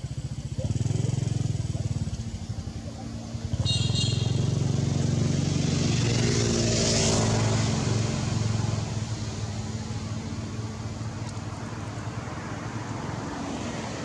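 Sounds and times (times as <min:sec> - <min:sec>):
motor engine running: 0:00.0 - 0:06.6.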